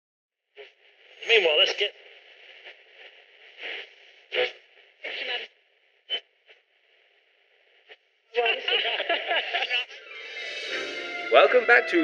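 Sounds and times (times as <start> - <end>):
radio static hiss: 0.6 - 10.1
voices from radio: 1.2 - 5.5, 8.4 - 10.1, 11.4 - 12.0.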